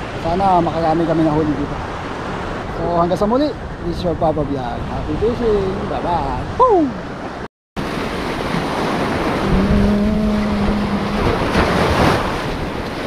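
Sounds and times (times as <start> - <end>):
wind on microphone: 0.0 - 7.4, 8.0 - 13.0
surf washing onto beach: 7.8 - 13.0
water buffalo mooing: 9.4 - 11.5.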